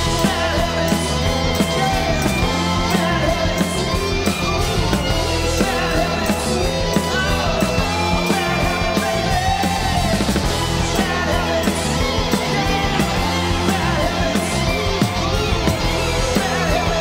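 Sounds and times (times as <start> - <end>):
electric guitar: 0.0 - 17.0
rock band playing live: 0.0 - 17.0
steady drum beat: 0.0 - 17.0.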